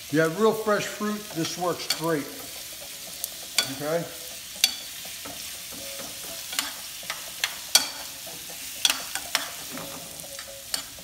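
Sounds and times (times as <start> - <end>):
vegetables sizzling in frying pan: 0.0 - 11.0
utensil clinking against pan: 4.6 - 11.0.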